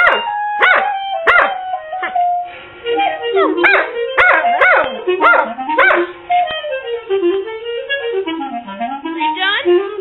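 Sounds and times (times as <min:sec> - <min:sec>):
dog yelping barks: 0:00.0 - 0:01.6, 0:03.4 - 0:06.1
music with wind instrument: 0:00.0 - 0:10.0.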